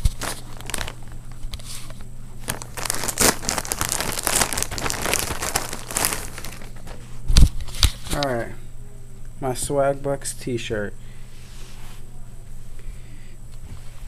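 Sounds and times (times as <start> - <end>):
plastic bag crinkling: 0.0 - 7.0.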